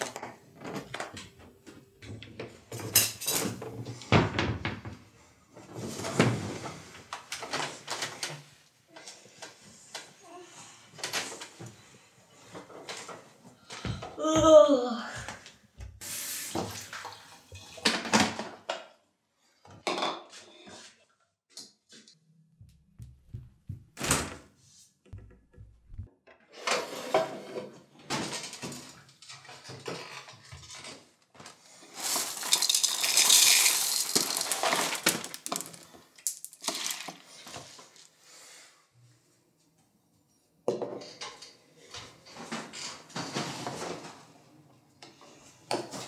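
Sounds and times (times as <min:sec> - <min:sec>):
dishes and cutlery clattering: 0:02.0 - 0:03.8, 0:40.7 - 0:41.6.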